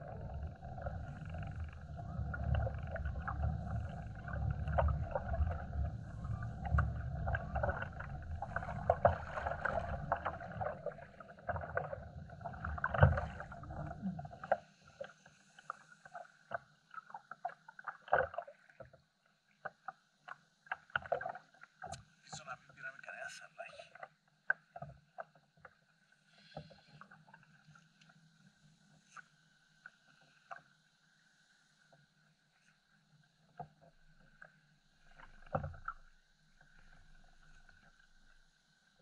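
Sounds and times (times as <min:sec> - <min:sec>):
wind and water rumble: 0:00.0 - 0:18.8.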